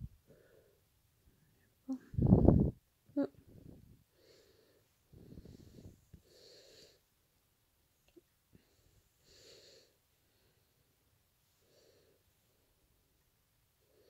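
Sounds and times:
soft breathing: 0.2s - 2.6s, 3.4s - 7.1s, 8.5s - 12.9s, 13.7s - 14.0s.

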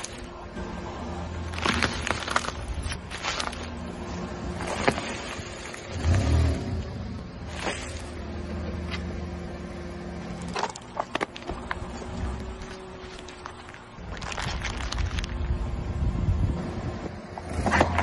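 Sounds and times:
tyre crushing wrappers crackling: 0.0s - 0.3s, 1.4s - 3.9s, 4.5s - 6.4s, 10.5s - 15.6s
car engine humming: 0.0s - 18.0s.

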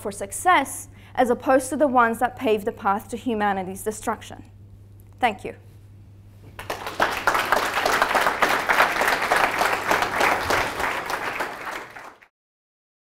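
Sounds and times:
audience applauding: 6.6s - 12.3s.

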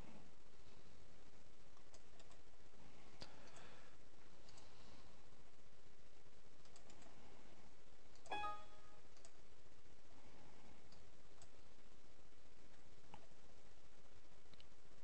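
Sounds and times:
faint mouse clicks: 1.8s - 2.4s, 4.4s - 4.7s, 6.6s - 7.2s, 10.9s - 11.7s
system alert chime: 8.3s - 9.0s.

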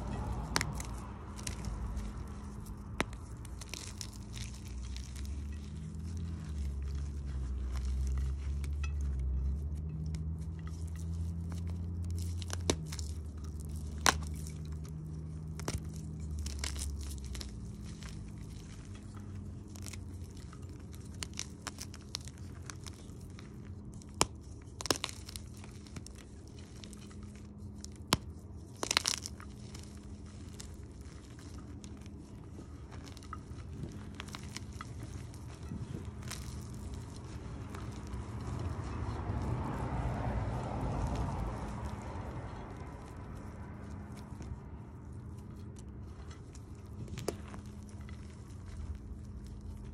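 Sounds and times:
chalk crumbling between hands: 0.0s - 49.9s
chalk lumps cracking: 0.0s - 49.9s
low hum: 0.0s - 49.9s.

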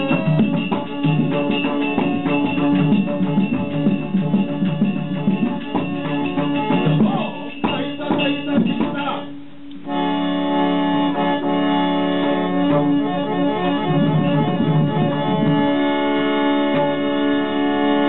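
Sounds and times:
quick drum strokes: 0.0s - 9.4s
harmonium chords: 0.0s - 18.0s
reedy melody: 0.0s - 18.0s.

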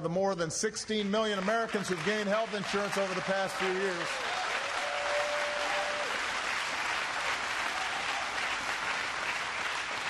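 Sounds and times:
crowd applauding: 1.2s - 10.0s
person cheering: 2.8s - 6.2s.

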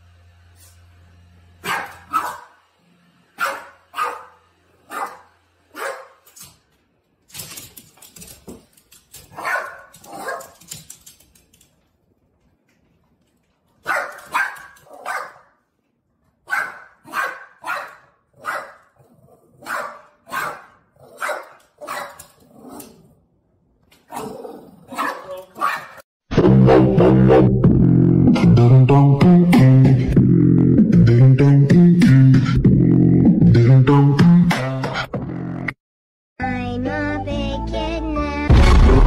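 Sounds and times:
dog barking sharply: 1.6s - 2.6s, 3.4s - 6.2s, 9.3s - 10.6s, 13.8s - 15.5s, 16.5s - 18.8s, 19.6s - 22.2s, 24.9s - 26.0s.

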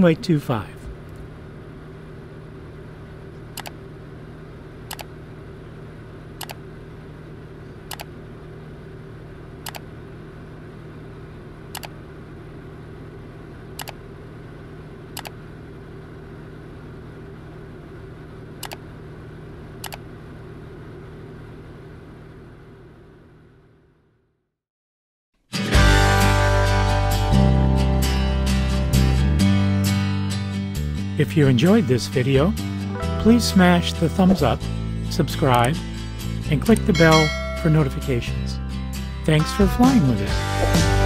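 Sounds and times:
sharp clicks: 3.5s - 3.8s, 4.9s - 5.1s, 6.4s - 6.6s, 7.9s - 8.1s, 9.6s - 9.9s, 11.7s - 12.0s, 13.8s - 14.0s, 15.2s - 15.4s, 18.6s - 18.8s, 19.8s - 20.0s.

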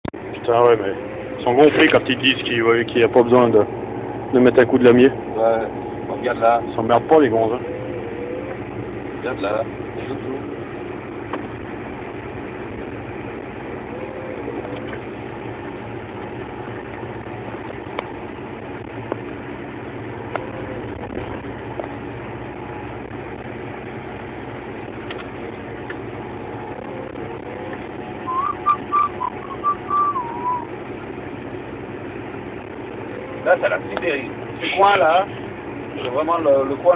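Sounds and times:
tractor diesel engine running: 0.0s - 36.9s
person whistling: 28.3s - 30.7s.

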